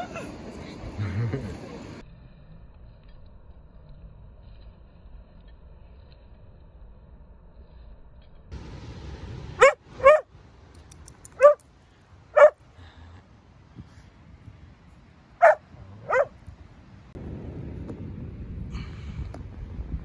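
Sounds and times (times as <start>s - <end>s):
dog barking: 9.6s - 10.3s, 11.4s - 11.6s, 12.4s - 12.6s, 15.4s - 16.4s.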